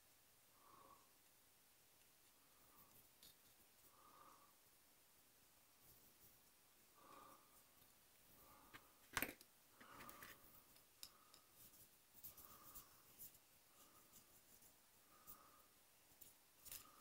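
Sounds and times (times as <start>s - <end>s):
small tools and plastic clicking: 2.0s - 3.6s, 16.2s - 17.0s.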